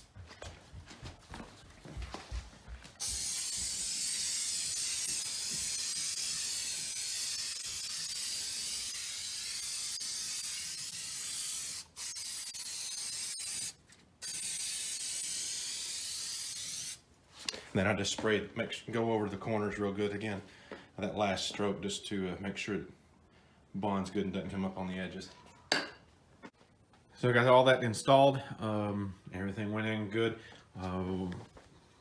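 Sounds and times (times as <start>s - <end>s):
aerosol can spraying: 3.0s - 17.0s.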